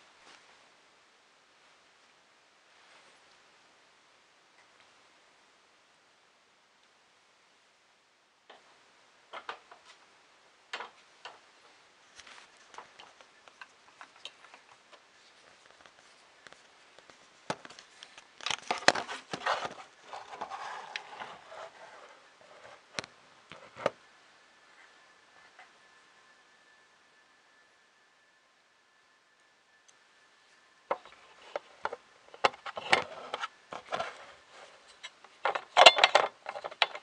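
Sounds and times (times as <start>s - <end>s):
rustling: 10.7s - 24.0s, 30.4s - 37.0s
plastic parts clicking: 34.9s - 37.0s.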